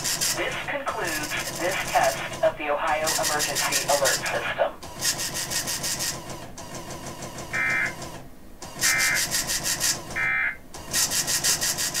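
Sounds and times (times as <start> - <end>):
digital data tone bursts: 8.8 - 9.4.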